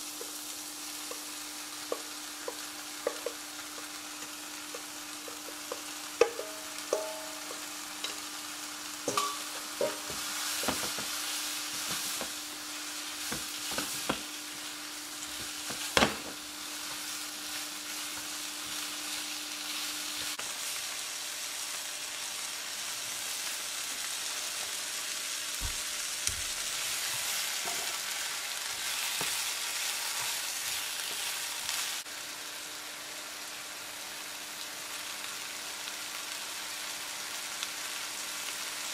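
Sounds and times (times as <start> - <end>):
vegetables sizzling in a frying pan: 0.0 - 38.9
chopsticks tapping a bowl: 1.9 - 8.2, 9.1 - 11.1.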